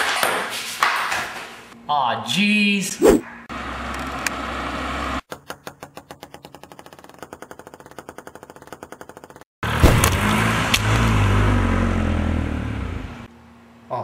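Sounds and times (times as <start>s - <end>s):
car engine and tyre noise: 7.0s - 13.3s.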